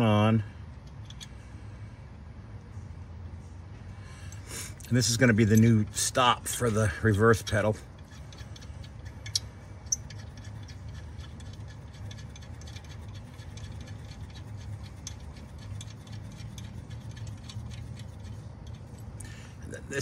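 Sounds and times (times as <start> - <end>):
low hum: 0.0 - 20.0
nut threading metallic ticks: 5.5 - 19.2.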